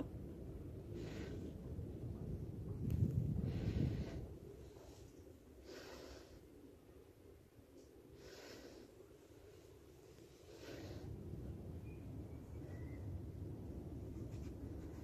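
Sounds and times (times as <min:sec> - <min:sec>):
slow breathing: 0:00.6 - 0:12.8.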